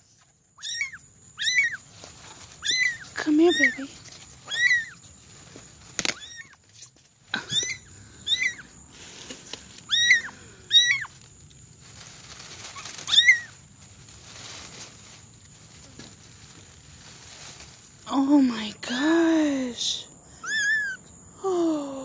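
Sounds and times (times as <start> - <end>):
kitten mewing: 4.5 - 5.0, 7.4 - 8.7, 9.9 - 11.1, 20.4 - 21.0.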